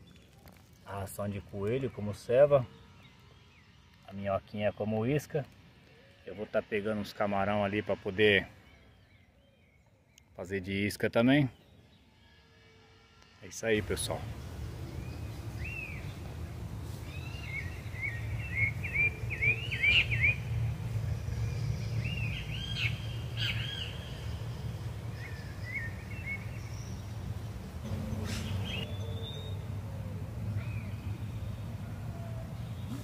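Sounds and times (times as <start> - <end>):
steady low rumble: 13.8 - 32.9
small birds chirping: 13.8 - 33.0.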